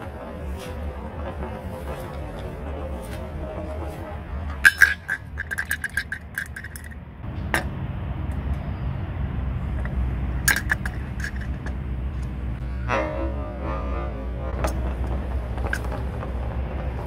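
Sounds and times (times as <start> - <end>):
ball clinking in tin bucket: 0.2 - 7.0, 9.8 - 11.8.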